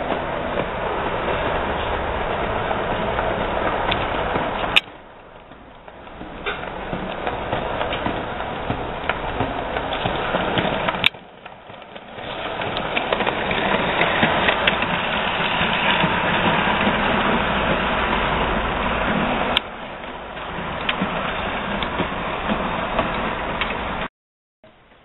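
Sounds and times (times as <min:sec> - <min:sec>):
track clicks: 0:00.0 - 0:24.1
model train motor whirring: 0:05.4 - 0:24.0.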